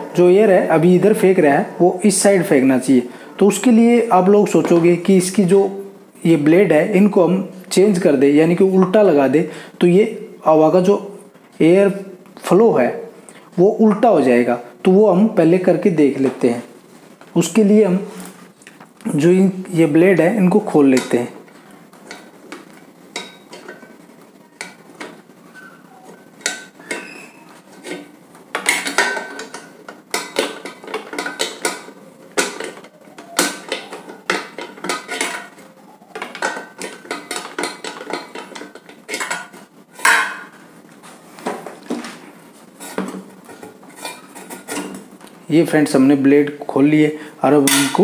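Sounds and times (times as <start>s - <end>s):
metal clinking and scraping: 26.4s - 35.6s, 42.8s - 45.0s.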